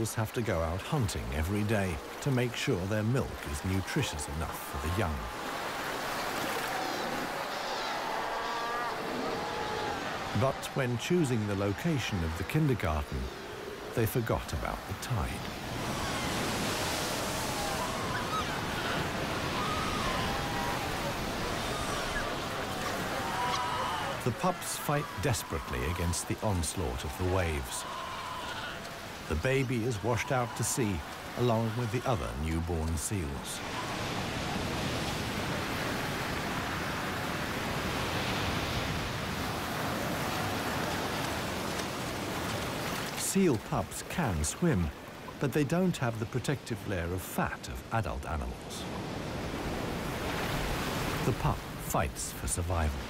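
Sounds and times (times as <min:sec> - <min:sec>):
waves breaking on shore: 0:00.0 - 0:53.0
seal pups bleating: 0:17.6 - 0:26.1, 0:27.6 - 0:29.3.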